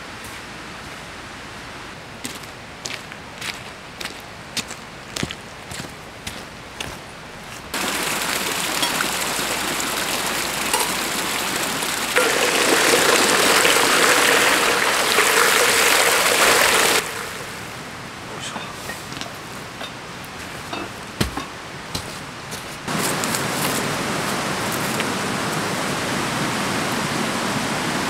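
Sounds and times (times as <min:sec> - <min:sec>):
footsteps on wet gravel: 0:02.2 - 0:09.2, 0:18.6 - 0:25.2
metal kettle filling with water: 0:07.8 - 0:17.5
water pouring from a hose: 0:07.8 - 0:17.7.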